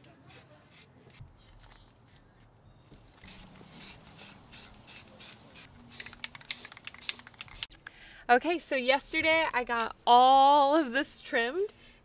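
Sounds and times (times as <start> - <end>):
spray paint can hissing: 3.2 - 7.8.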